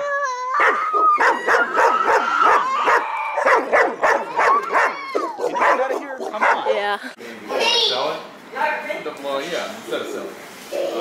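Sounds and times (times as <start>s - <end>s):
dog whining: 0.0s - 6.8s
dogs barking excitedly: 0.6s - 6.9s.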